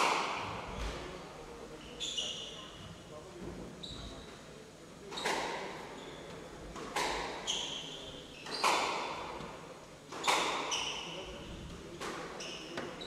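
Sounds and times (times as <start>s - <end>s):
squash ball hit by racket: 0.0s - 0.6s, 6.8s - 7.5s, 8.5s - 9.3s, 10.1s - 10.9s.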